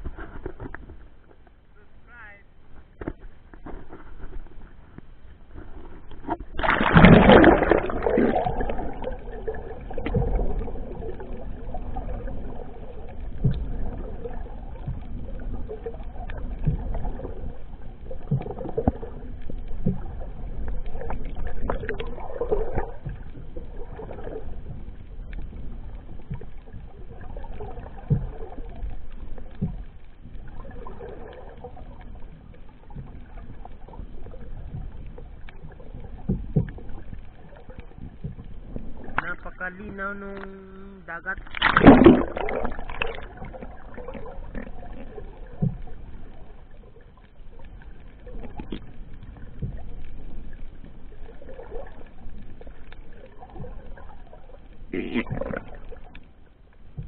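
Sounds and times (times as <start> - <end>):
muffled underwater water noise: 0.0 - 57.0
loud splash: 6.5 - 10.4, 41.3 - 43.5.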